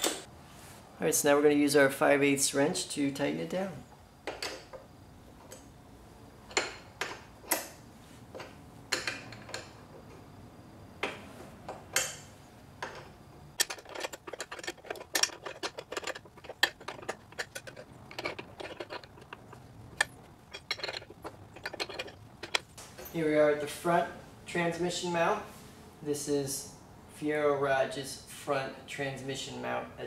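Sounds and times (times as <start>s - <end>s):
wrench clinking on metal: 11.9s - 23.2s.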